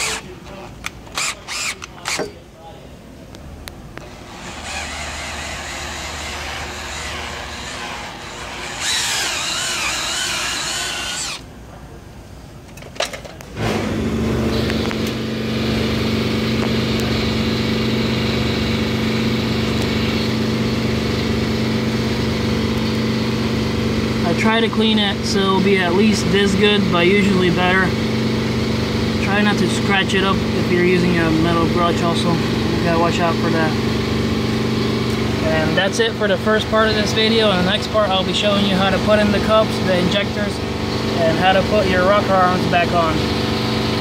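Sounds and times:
cordless drill spinning: 0.0 - 0.2, 1.1 - 2.3, 4.0 - 11.5
steady machine hum: 0.0 - 12.6, 13.6 - 44.0.

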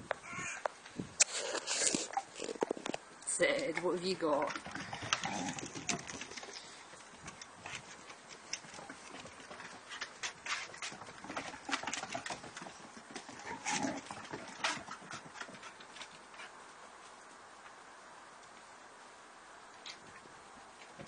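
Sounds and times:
dog claws clicking on wooden decking: 4.4 - 16.6.

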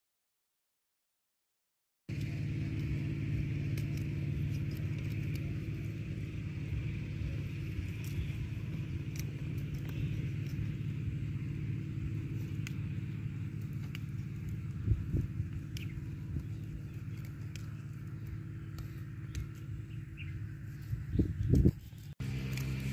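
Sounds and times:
low engine hum: 2.1 - 22.9.

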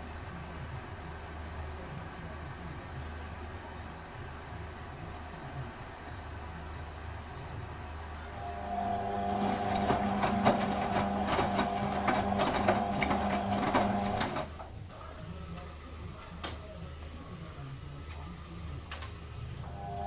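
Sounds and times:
washing machine motor hum: 7.8 - 14.8, 19.2 - 20.0
washing machine click: 9.1 - 14.6.

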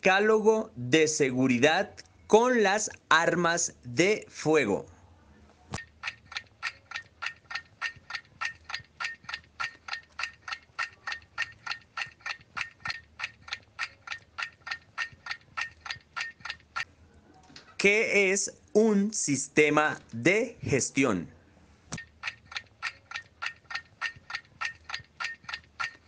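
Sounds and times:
clock ticking: 5.8 - 16.9, 22.0 - 26.0.

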